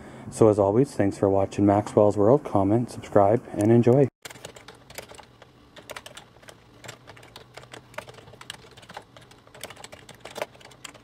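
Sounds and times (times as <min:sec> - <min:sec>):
computer keyboard typing: 0:04.2 - 0:11.0.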